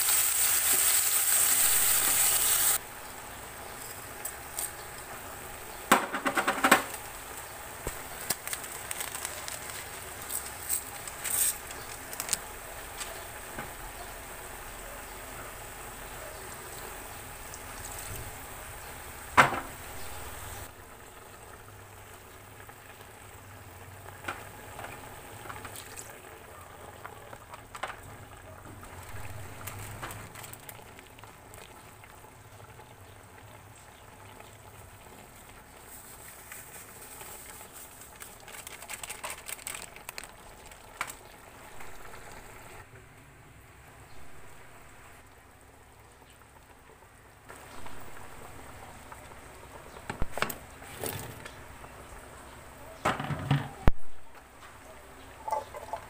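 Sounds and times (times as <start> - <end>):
stew simmering hiss: 0.0 - 56.0
vegetables knocking into pot: 5.8 - 7.0, 53.0 - 53.9.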